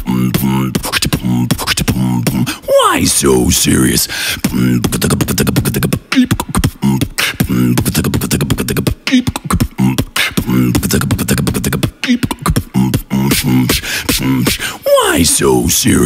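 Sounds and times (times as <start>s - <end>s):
man beatboxing: 0.0s - 16.0s.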